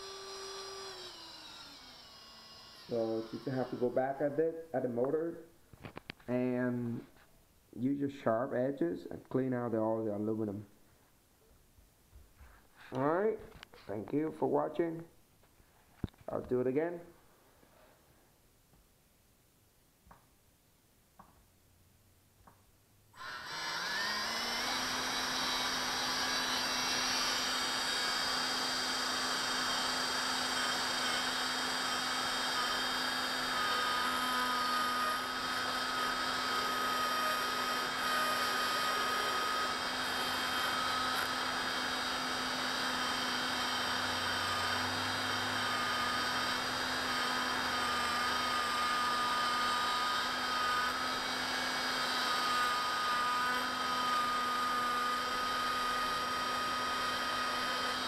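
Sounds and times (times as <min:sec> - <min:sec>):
electric motor whine: 0:00.0 - 0:04.0, 0:23.2 - 0:58.0.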